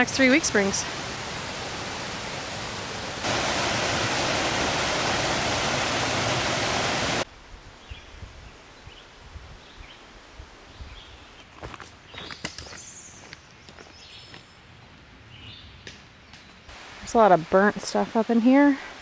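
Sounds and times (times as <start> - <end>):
water rushing over a dam: 0.0 - 7.3.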